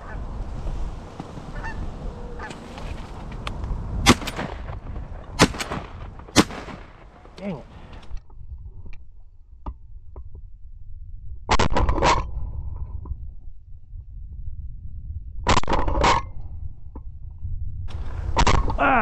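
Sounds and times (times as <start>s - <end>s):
shotgun shots: 4.0s - 7.7s.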